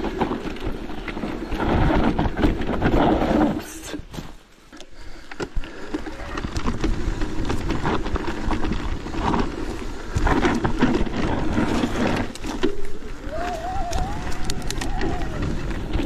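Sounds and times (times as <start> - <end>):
bike knocks and rattles: 0.0 - 3.6, 6.3 - 13.0
wind rushing over microphone: 6.2 - 16.0.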